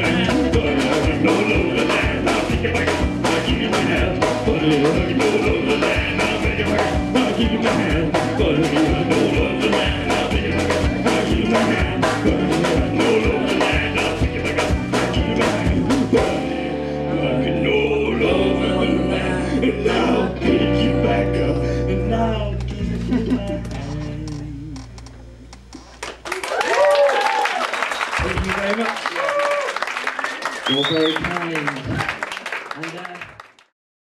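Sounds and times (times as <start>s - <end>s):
drum-kit beat: 0.0s - 16.5s, 22.6s - 26.6s
person singing: 0.0s - 25.1s
strummed acoustic guitars: 0.0s - 25.2s.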